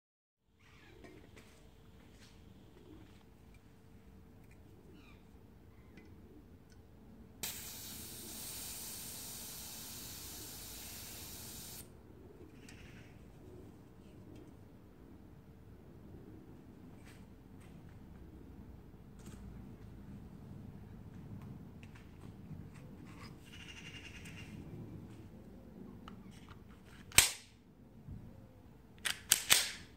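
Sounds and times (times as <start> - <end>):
faint low background rumble: 0.6 - 7.4
gas hissing into magazine: 7.4 - 11.9.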